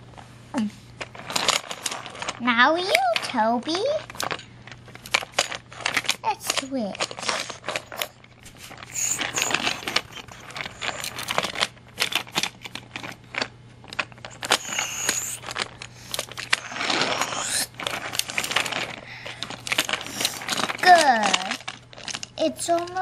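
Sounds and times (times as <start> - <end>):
toy trains rolling and scraping: 1.0 - 23.0
toy trains clattering on track: 5.0 - 8.2, 8.8 - 23.0.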